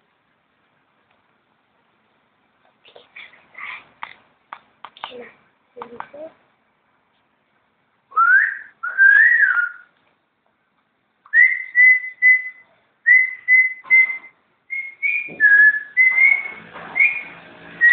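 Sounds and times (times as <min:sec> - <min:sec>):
parrot whistling: 0:08.1 - 0:09.9, 0:11.3 - 0:17.9.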